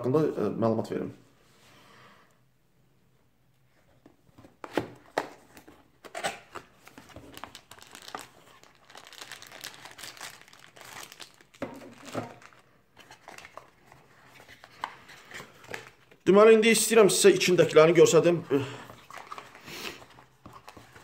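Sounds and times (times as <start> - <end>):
packaging rustling and crinkling: 4.4 - 16.2, 18.8 - 21.0.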